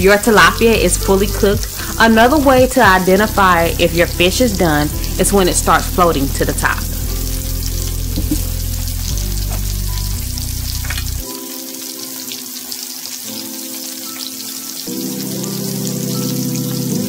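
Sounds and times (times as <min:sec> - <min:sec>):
background music with sustained chords: 0:00.0 - 0:17.0
fish frying in oil: 0:00.0 - 0:17.0.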